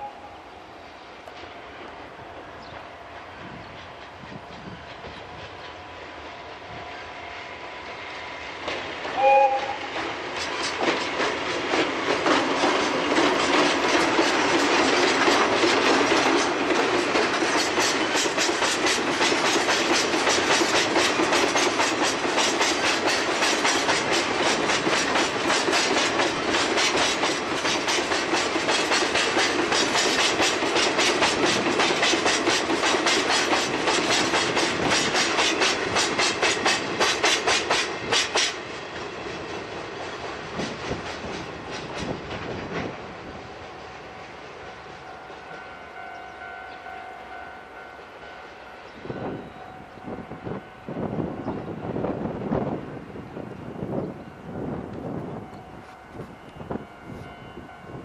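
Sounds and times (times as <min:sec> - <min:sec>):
train wheels clickety-clack: 0:01.2 - 0:07.0, 0:07.7 - 0:46.4.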